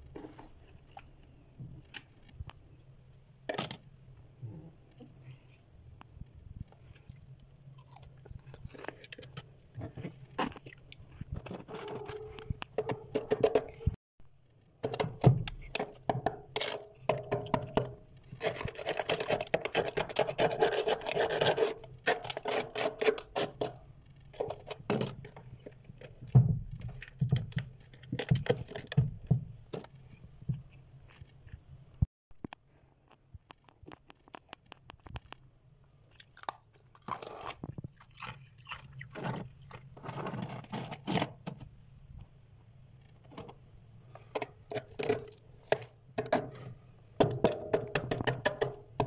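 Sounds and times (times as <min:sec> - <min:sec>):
ice scraped and cracking: 0:18.3 - 0:23.7, 0:37.0 - 0:37.8, 0:39.0 - 0:41.4.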